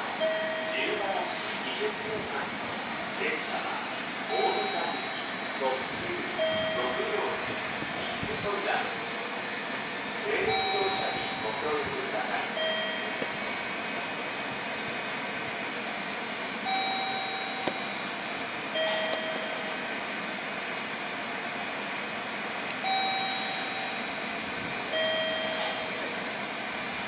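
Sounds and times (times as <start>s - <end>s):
electric train humming: 0.0s - 27.0s
two-tone electronic chime: 4.3s - 5.3s, 6.4s - 7.2s, 10.5s - 11.8s, 12.6s - 13.2s, 16.7s - 18.0s, 22.8s - 23.8s, 25.0s - 25.9s.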